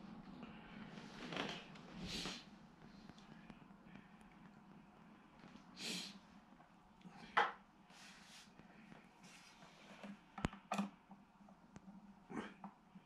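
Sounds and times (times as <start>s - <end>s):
soft handling rustles and scrapes: 7.8s - 10.4s.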